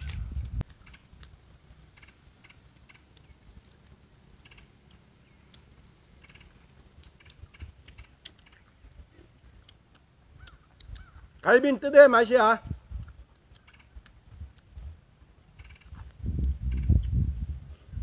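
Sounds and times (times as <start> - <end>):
clicks and taps of people eating: 7.0 - 11.5.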